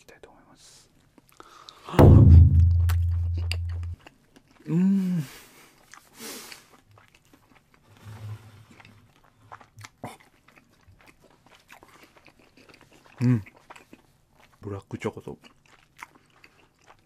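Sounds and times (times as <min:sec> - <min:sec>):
deep sound effect hit: 0:02.0 - 0:04.0
person chewing: 0:02.8 - 0:04.8, 0:05.6 - 0:07.8, 0:08.7 - 0:17.0.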